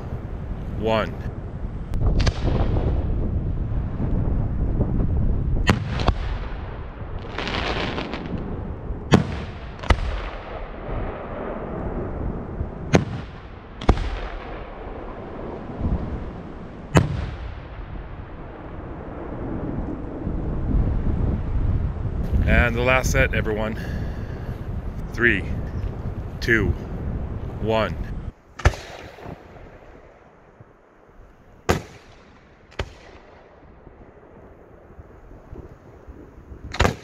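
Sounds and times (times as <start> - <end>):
firework booms with echo: 2.0 - 21.2, 28.6 - 30.1, 31.6 - 34.9, 36.6 - 37.0.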